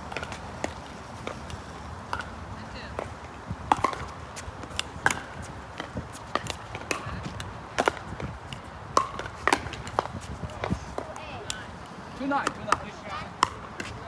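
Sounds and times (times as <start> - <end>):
ball bouncing on court: 3.7 - 14.0.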